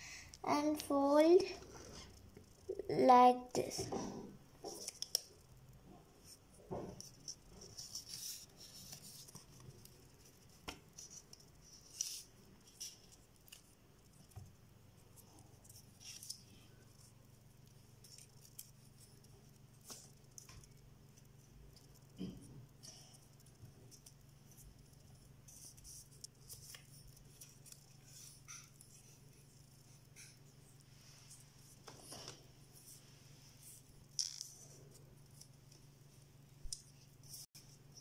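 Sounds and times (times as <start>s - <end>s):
paper folding and crinkling: 4.6s - 5.4s, 6.2s - 38.0s.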